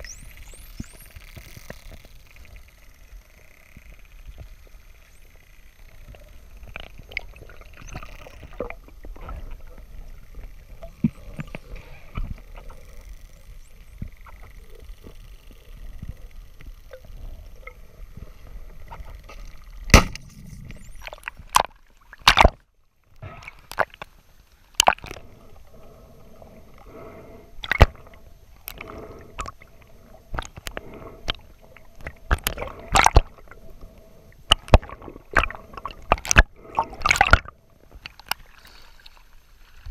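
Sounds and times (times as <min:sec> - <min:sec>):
speargun firing crack: 0:19.9 - 0:20.5
underwater water rush: 0:23.2 - 0:39.9.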